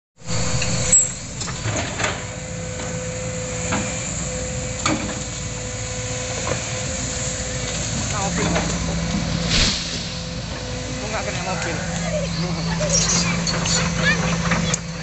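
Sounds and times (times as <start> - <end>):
excavator engine humming: 0.2 - 15.0.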